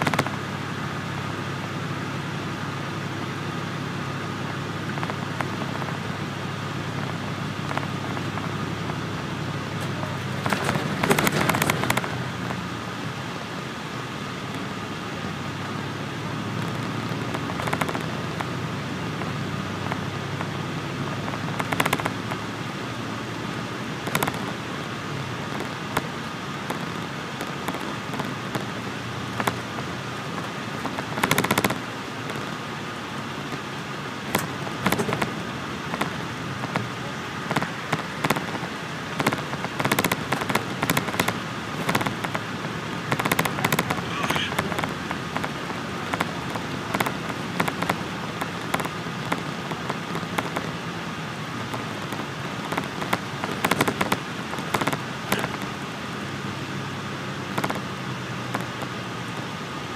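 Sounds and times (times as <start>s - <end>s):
sharp rattles and clicks: 0.0s - 0.4s, 6.8s - 12.7s, 16.5s - 20.6s, 21.2s - 22.5s, 24.0s - 24.8s, 25.4s - 32.7s, 33.4s - 50.9s, 51.6s - 55.8s, 57.5s - 57.9s, 58.5s - 59.5s
faint steady whine: 0.0s - 59.9s
road and engine noise in bus: 0.0s - 59.9s.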